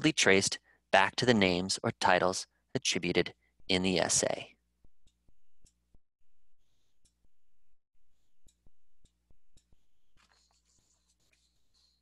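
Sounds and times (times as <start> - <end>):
faint irregular clicks: 4.8 - 6.0, 8.4 - 11.4.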